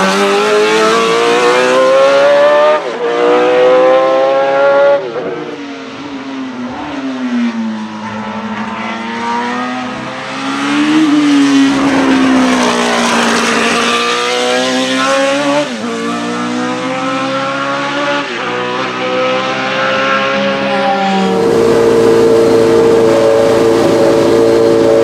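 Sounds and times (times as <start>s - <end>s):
racing car engine: 0.0s - 25.0s
gear change pitch drops: 19.9s - 25.0s.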